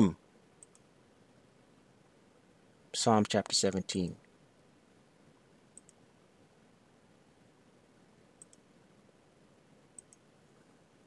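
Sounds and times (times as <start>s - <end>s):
computer mouse clicks: 0.6s - 0.9s, 5.7s - 6.0s, 8.4s - 8.7s, 9.9s - 10.3s.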